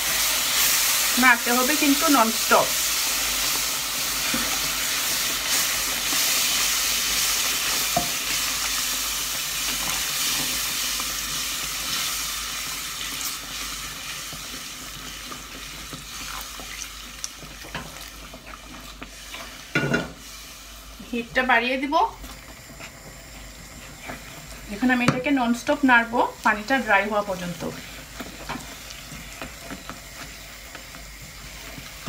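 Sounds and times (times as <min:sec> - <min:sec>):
syrup sizzling in hot fat: 0:00.0 - 0:32.0
wooden spatula stirring pot: 0:13.0 - 0:20.2, 0:22.2 - 0:25.7, 0:26.4 - 0:32.0.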